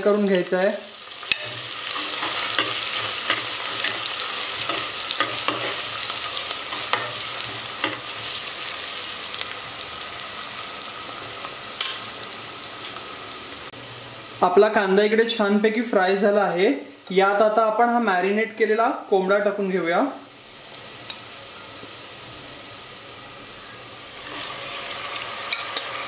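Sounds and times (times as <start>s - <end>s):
onion sizzling in hot oil: 0.0s - 26.0s
steel spoon scraping pot: 1.3s - 8.4s.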